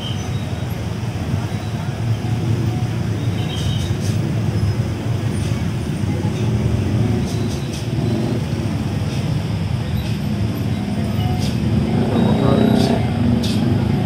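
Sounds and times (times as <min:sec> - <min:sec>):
motor scooters passing: 0:04.4 - 0:14.0.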